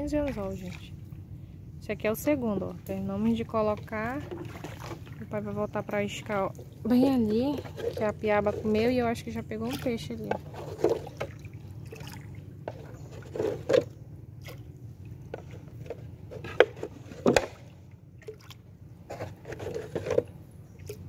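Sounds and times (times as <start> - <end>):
canoe paddle dipping and pulling: 0.0 - 1.5, 2.5 - 21.0
water splashing and dripping: 9.6 - 12.8, 17.6 - 18.7.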